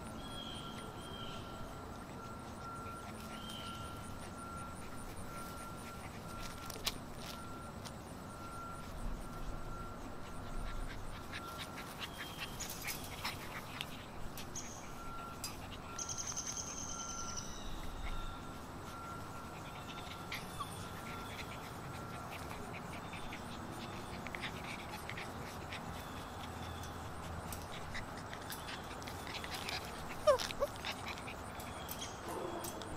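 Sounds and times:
puppies scuffling: 1.9 - 32.9
puppy squeaky calls: 19.7 - 27.0, 27.8 - 32.6.

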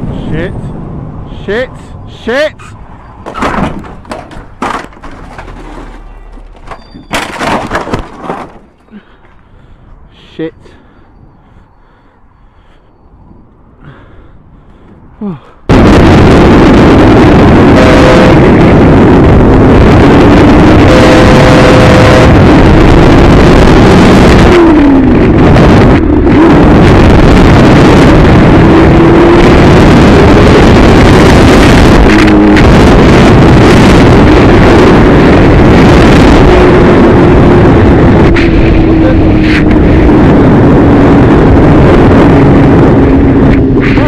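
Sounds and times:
wind noise on microphone: 10.8 - 44.0
motorcycle engine: 16.9 - 44.0.

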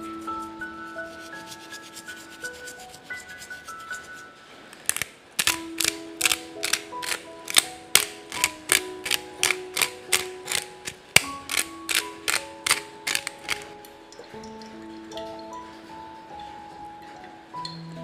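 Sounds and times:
pepper mill ratcheting clicks: 4.8 - 13.7.

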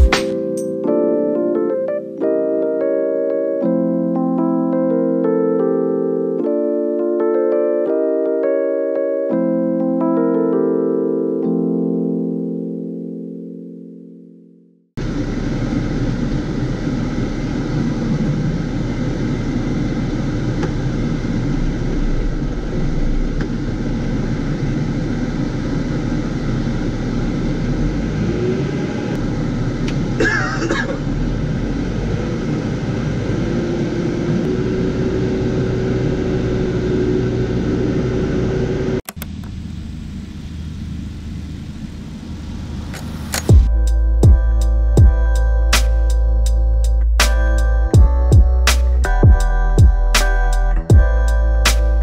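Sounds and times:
tractor diesel engine rumbling: 15.0 - 44.2.

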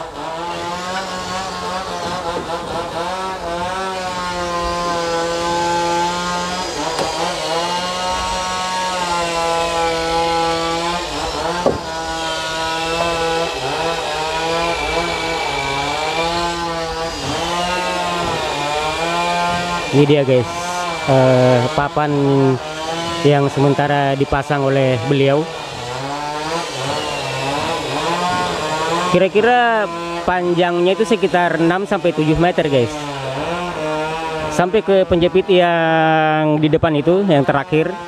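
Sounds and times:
chainsaw cutting wood: 0.0 - 38.0
sharp knock: 11.6 - 11.9.

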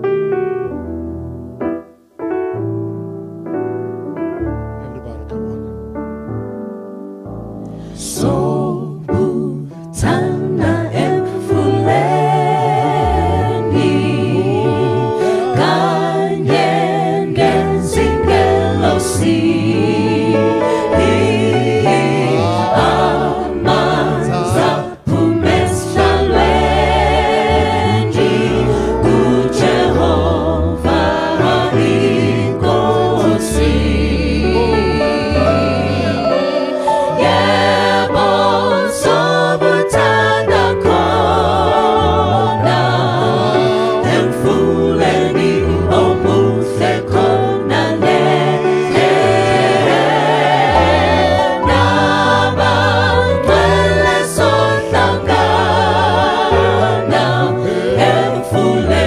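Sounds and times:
low bass voice: 4.8 - 5.7, 22.2 - 23.1, 24.0 - 24.9
vocal group singing in harmony: 7.6 - 59.0.

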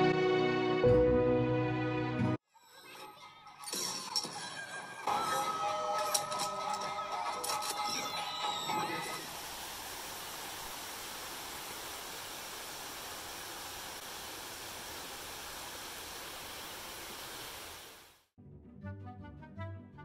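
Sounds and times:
pouring rain: 8.3 - 18.3.

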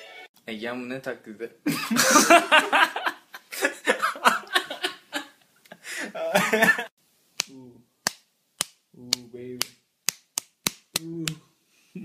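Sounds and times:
hand slapping bare skin: 7.3 - 11.4.

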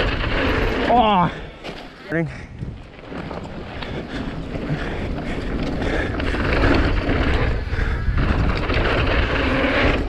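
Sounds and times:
bike rolling on trail: 0.0 - 10.0
wind rushing over microphone: 2.4 - 10.0.

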